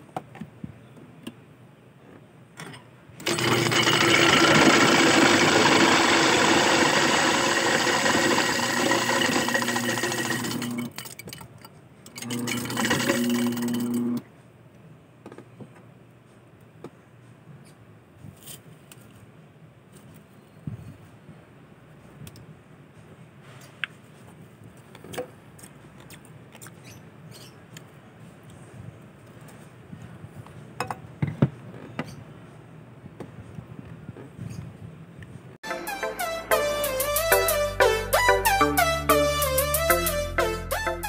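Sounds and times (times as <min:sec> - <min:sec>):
ice crusher motor humming: 0:03.2 - 0:11.0, 0:12.1 - 0:14.2
ice cubes being crushed: 0:03.2 - 0:11.2.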